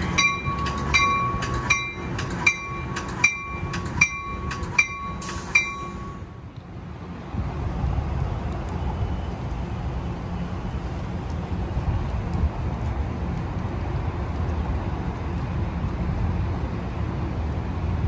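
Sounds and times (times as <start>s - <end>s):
train bell ringing: 0.0s - 6.4s
approaching train rumble: 0.0s - 18.0s.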